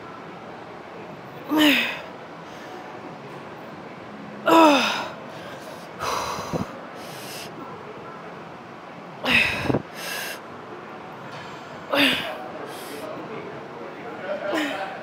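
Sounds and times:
woman grunting with effort: 9.3 - 10.2, 11.9 - 12.3.

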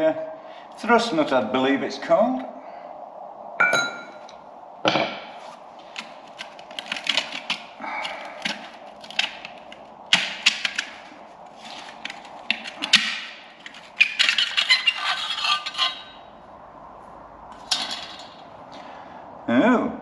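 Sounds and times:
metal knock with ring: 3.6 - 4.2.

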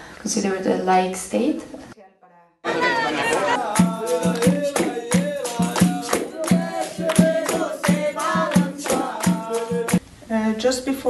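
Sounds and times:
group singing: 2.6 - 10.0
handclaps: 3.3 - 10.0
hand drum beat: 3.6 - 10.0.

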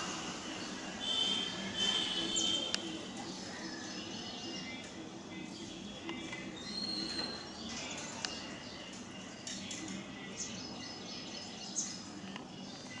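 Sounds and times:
outdoor background noise: 0.0 - 13.0
high bird chirps: 6.6 - 8.4.

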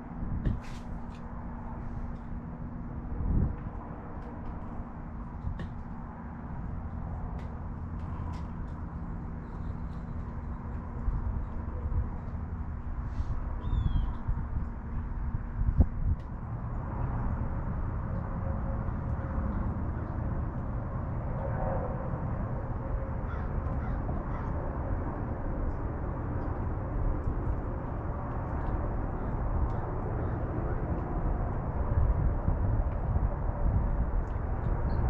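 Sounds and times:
wind rumble on microphone: 0.0 - 35.0
crows cawing: 23.3 - 24.5.

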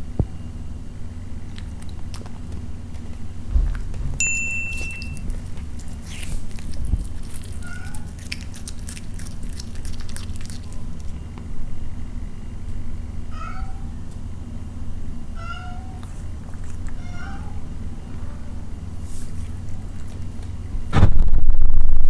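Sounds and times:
steady low hum: 0.0 - 22.0
cat chewing and licking: 1.4 - 11.2, 16.0 - 17.5, 19.0 - 20.8
short high chime: 4.2 - 5.2.

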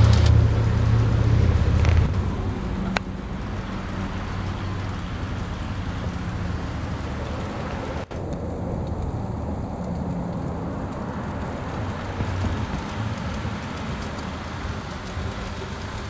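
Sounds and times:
model train running: 11.0 - 16.0.

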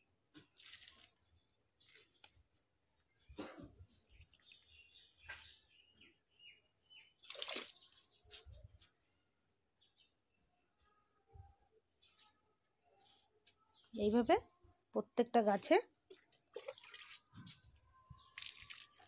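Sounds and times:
liquid splashing onto soil: 0.4 - 2.4, 7.2 - 8.0, 16.5 - 17.3, 18.2 - 19.0
faint bird chirps: 16.6 - 19.0.

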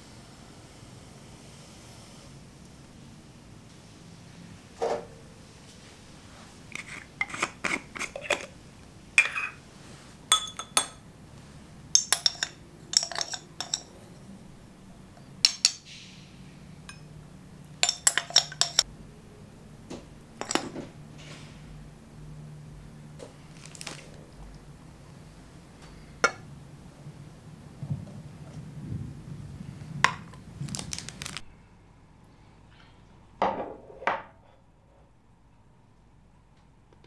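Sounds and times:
spoon clinking against bowl and pot: 9.2 - 9.6, 10.3 - 11.1, 11.9 - 14.0, 15.2 - 15.9, 17.7 - 18.9, 20.4 - 20.8.

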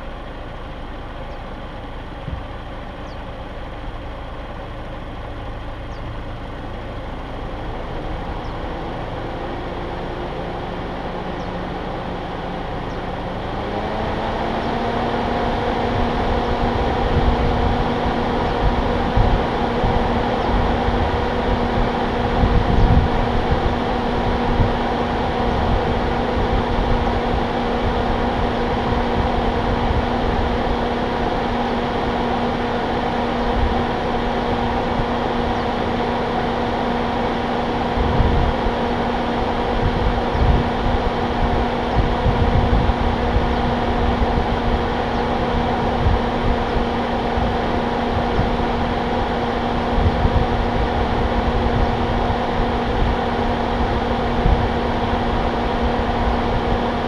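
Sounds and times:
steady mechanical hum: 0.0 - 57.0
wind buffeting microphone: 13.5 - 36.1, 37.7 - 57.0.

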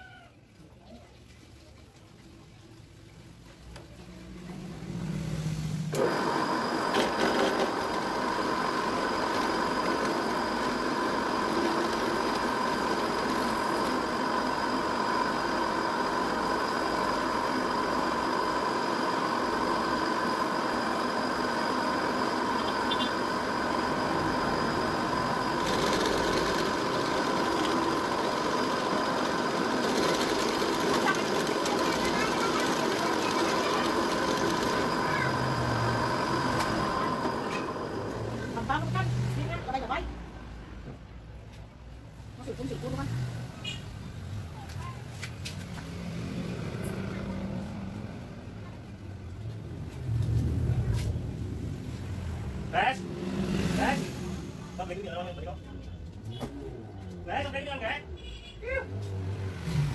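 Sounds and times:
drill press motor whining: 5.9 - 38.8.

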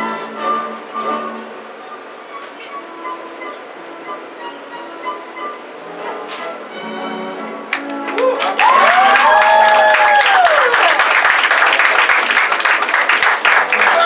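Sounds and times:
music: 0.0 - 8.6, 13.5 - 14.0
audience clapping and cheering: 7.7 - 14.0
whoops: 8.1 - 11.1, 13.8 - 14.0.

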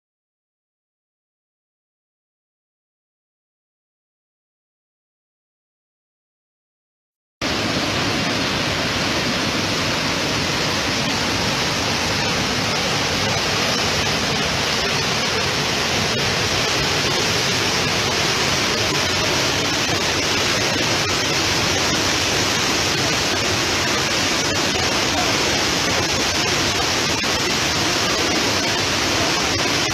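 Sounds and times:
water rushing over waterfall: 7.4 - 29.9.

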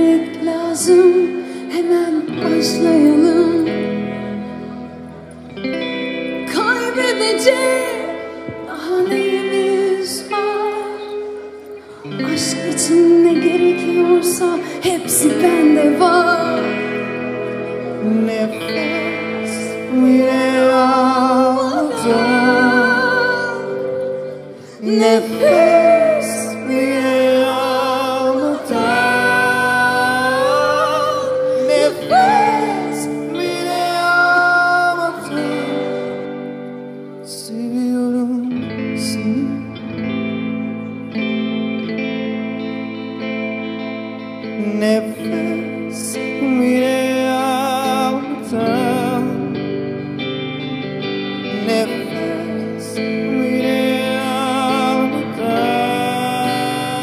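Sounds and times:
man singing: 0.0 - 4.4, 6.4 - 40.9, 44.4 - 50.2, 51.3 - 57.0
woman singing: 0.0 - 4.4, 6.4 - 11.3, 12.1 - 17.3, 18.0 - 36.4
acoustic guitar: 0.0 - 57.0.

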